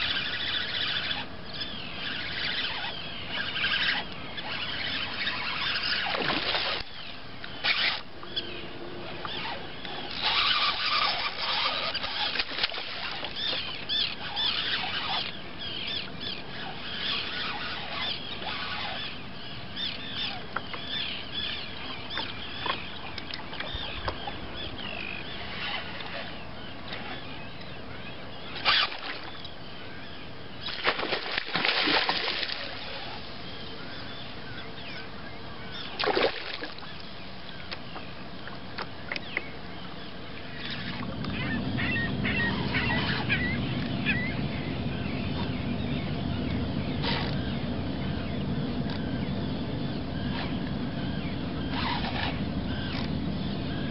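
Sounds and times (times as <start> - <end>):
birds chirping: 0.0 - 53.9
water splashing: 30.7 - 33.3, 36.0 - 36.9.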